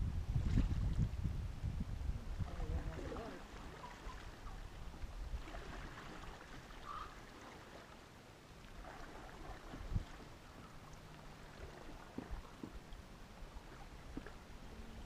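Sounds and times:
low wind rumble: 0.0 - 7.1
ripples lapping at shore: 2.2 - 15.0.

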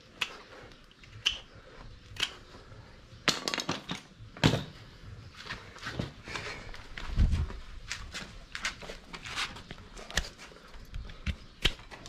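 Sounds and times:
hoof trimming snips and knocks: 8.6 - 12.0.

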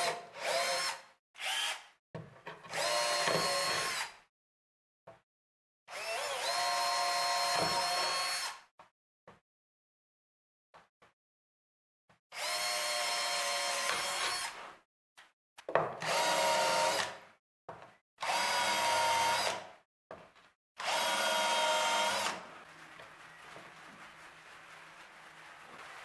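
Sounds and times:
cordless drill running: 0.0 - 1.8, 2.7 - 4.1, 5.9 - 8.6, 12.4 - 14.6, 16.0 - 17.1, 18.2 - 19.6, 20.8 - 22.4.

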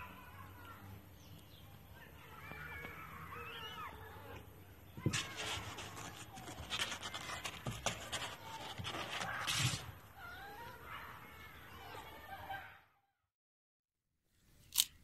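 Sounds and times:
claws scratching on cardboard: 5.0 - 10.0.

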